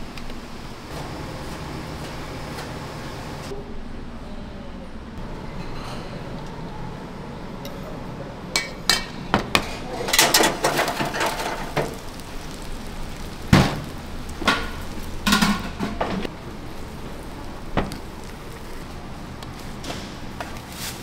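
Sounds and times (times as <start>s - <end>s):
dishes and utensils clattering: 5.5s - 6.2s, 8.6s - 12.0s, 14.4s - 16.3s.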